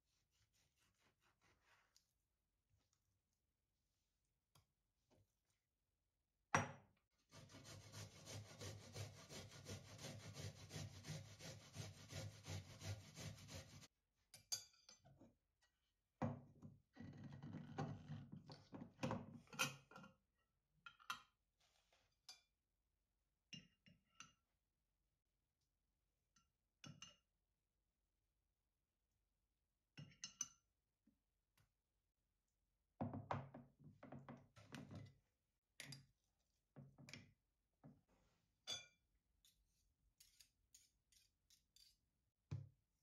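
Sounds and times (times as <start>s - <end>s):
spoon clinking glass bowl: 38.6s - 39.0s.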